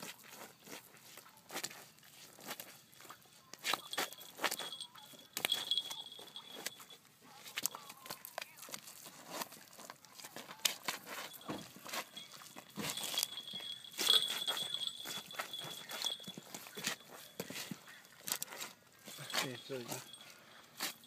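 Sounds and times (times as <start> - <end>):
thin high-pitched tone: 3.7 - 7.0.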